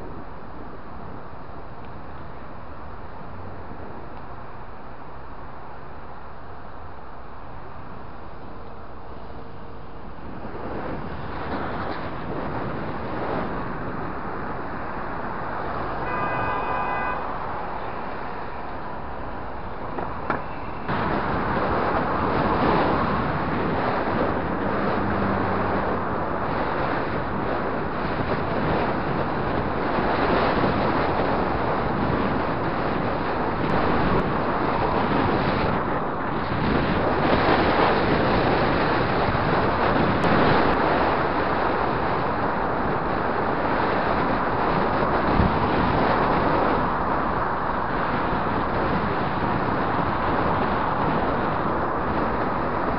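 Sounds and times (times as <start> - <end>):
passing cars: 0.0 - 52.9
wind rushing over microphone: 0.0 - 52.9
short horn-like tone: 16.0 - 18.2.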